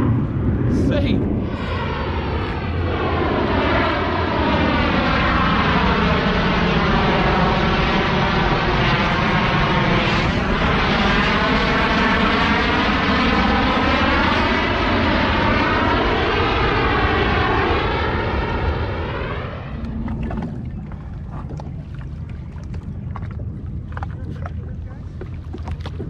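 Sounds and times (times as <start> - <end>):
fighter jet flying overhead: 0.0 - 26.0
water slapping hull: 19.6 - 26.0.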